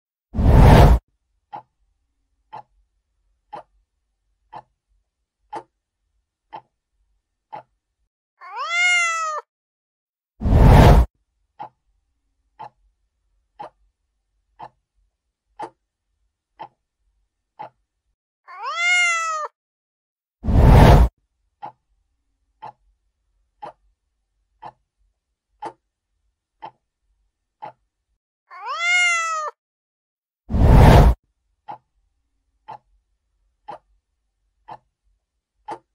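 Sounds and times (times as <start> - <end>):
whoosh: 0.4 - 1.0, 10.4 - 11.1, 20.4 - 21.1, 30.5 - 31.2
clock ticking: 7.5 - 7.8, 12.6 - 12.8, 14.6 - 14.8, 16.6 - 16.8
cat meow sound effect: 8.4 - 9.5, 18.5 - 19.5, 28.5 - 29.6.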